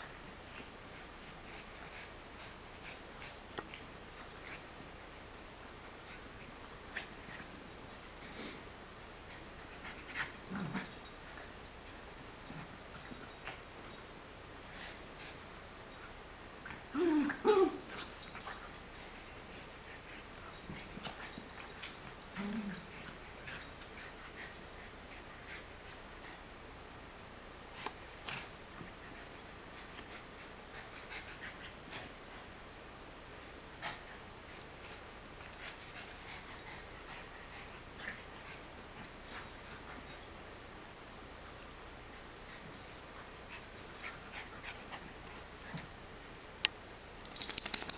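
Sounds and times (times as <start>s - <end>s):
dog vocalisations: 17.0s - 17.9s.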